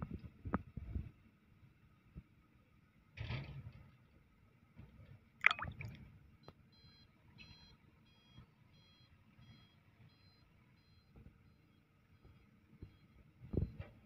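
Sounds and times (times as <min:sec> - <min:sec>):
vehicle back-up alarm beeping: 0:06.7 - 0:13.9.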